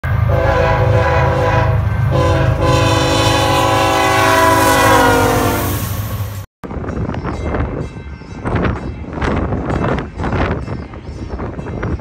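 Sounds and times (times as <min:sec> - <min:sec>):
air horn blasts: 0:00.3 - 0:05.9
wind rumble on microphone: 0:06.6 - 0:12.0.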